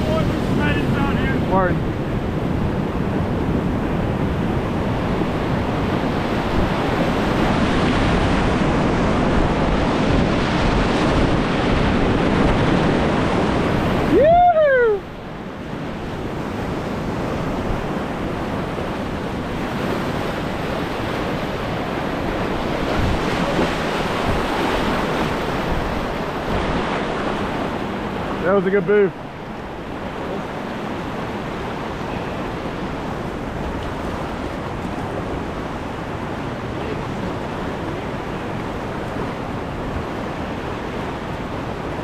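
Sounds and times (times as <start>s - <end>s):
whitewater rapids rushing: 0.0s - 2.2s, 4.9s - 16.0s, 16.6s - 42.0s
person whooping: 14.0s - 15.1s.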